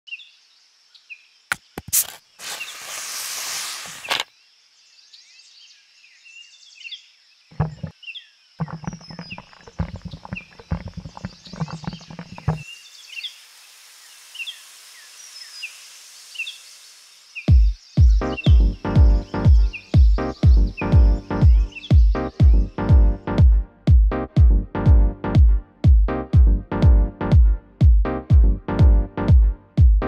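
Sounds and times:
carbonation hissing: 1.5 - 4.3, 11.2 - 17.5
birds chirping: 7.5 - 13.5, 14.2 - 23.2.

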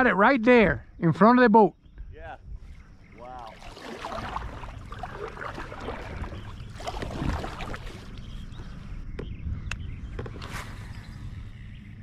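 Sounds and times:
wind rumble on microphone: 1.8 - 12.0
paddle splashing in water: 3.4 - 8.5.

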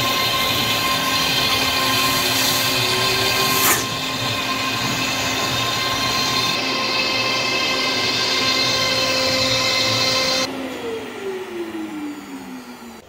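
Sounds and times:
dust extractor rushing hiss: 0.0 - 10.5
router spindle whine: 0.0 - 13.0.

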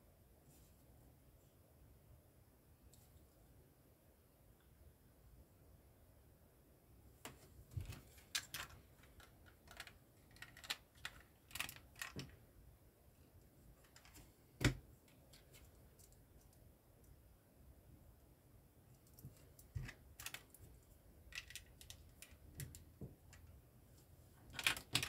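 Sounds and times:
plastic bricks clicking together: 8.2 - 12.4, 21.3 - 23.5.

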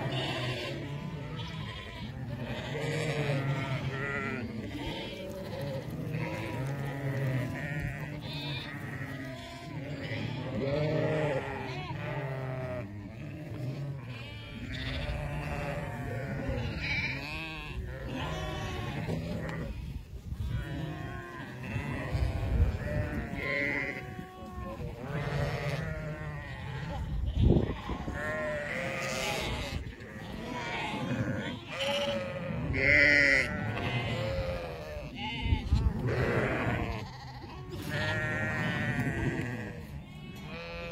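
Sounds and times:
sheep bleating: 0.0 - 40.9.

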